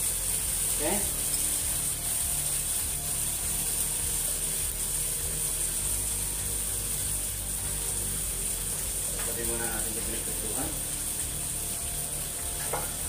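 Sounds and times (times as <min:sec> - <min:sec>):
sauce hissing in frying pan: 0:00.0 - 0:13.0.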